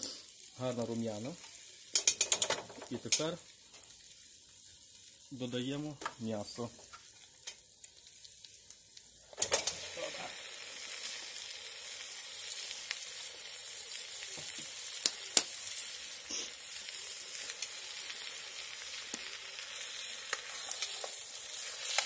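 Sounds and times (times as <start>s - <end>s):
meat sizzling in hot fat: 0.0s - 22.0s
sharp pops of frying fat: 1.8s - 4.0s, 5.9s - 10.1s, 14.2s - 16.4s, 17.4s - 22.0s.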